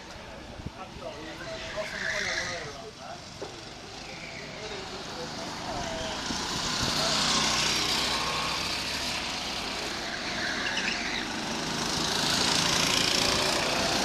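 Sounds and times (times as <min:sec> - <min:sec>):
go-kart engines passing: 0:00.0 - 0:14.0.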